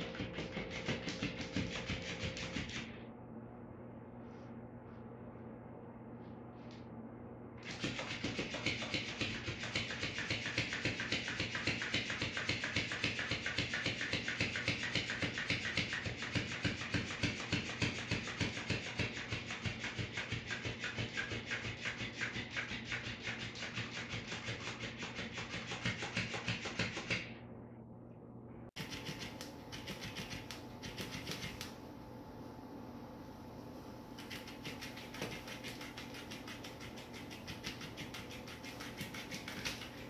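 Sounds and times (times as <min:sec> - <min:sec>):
toy tail slapping tile floor: 0:28.8 - 0:31.8, 0:34.2 - 0:40.0.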